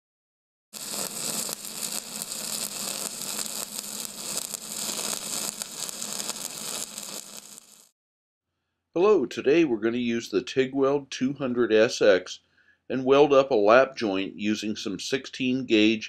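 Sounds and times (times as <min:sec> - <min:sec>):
crackling hiss: 0:00.8 - 0:07.9.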